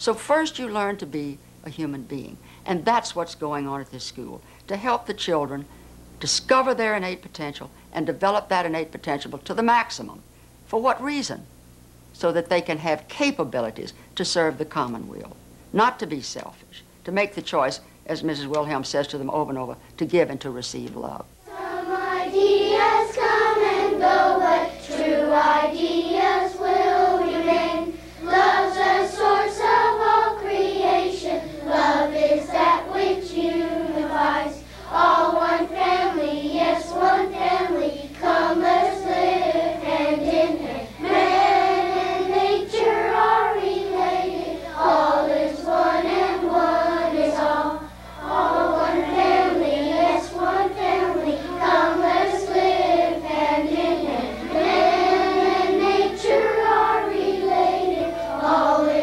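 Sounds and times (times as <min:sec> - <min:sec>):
children's choir singing: 0:21.5 - 0:59.0.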